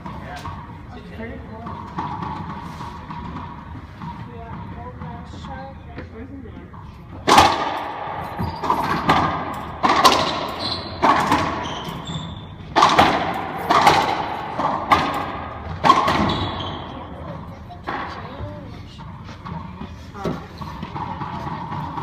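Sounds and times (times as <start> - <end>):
racquetball hits ringing in court: 7.2 - 18.4.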